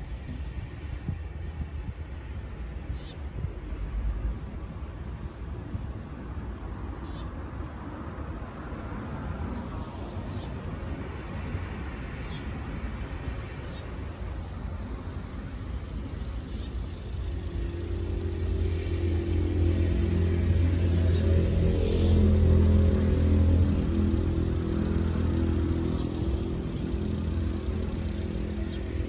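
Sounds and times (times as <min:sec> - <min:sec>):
road traffic rumbling: 0:00.0 - 0:29.0
vehicle engine passing: 0:17.0 - 0:29.0.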